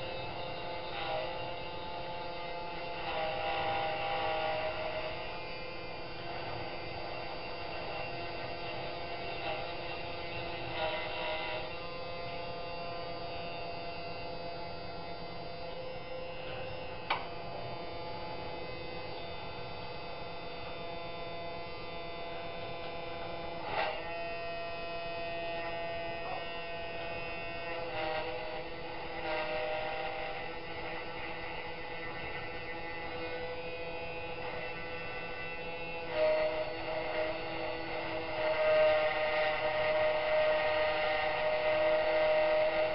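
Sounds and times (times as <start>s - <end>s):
cutter scratching metal: 0.0s - 42.9s
engraving spindle humming: 0.0s - 42.9s.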